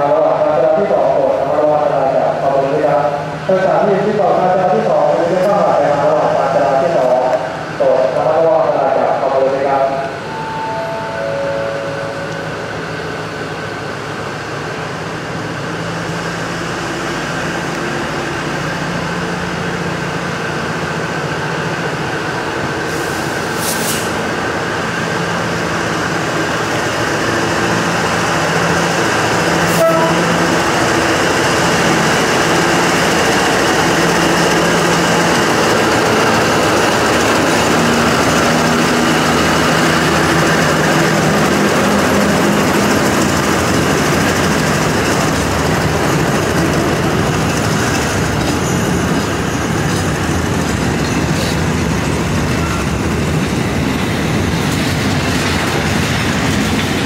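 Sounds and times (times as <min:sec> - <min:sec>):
locomotive engine drone: 0:00.0 - 0:57.0
train wheels rumbling: 0:00.0 - 0:57.0
short high hiss: 0:22.9 - 0:24.2.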